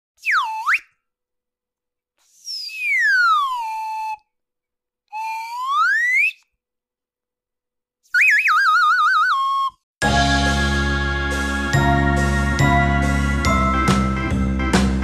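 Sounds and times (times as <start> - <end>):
slide whistle: 0.2 - 1.1, 2.2 - 4.4, 5.1 - 6.6, 8.1 - 9.8.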